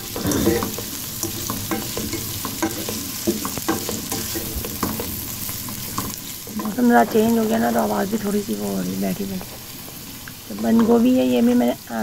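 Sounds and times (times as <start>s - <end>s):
spatula scraping a pan: 0.0s - 7.8s
food sizzling in hot oil: 0.0s - 12.0s.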